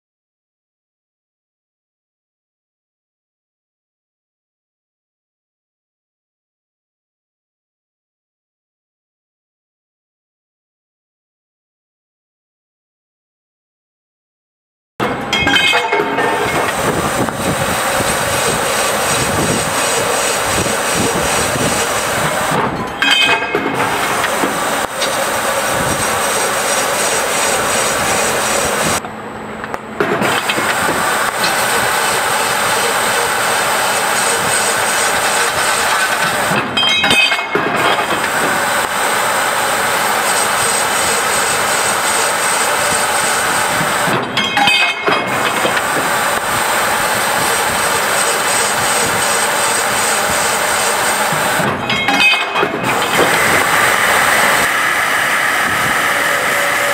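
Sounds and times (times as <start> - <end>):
machine cutting metal tubes: 15.0 - 29.0, 30.0 - 56.9.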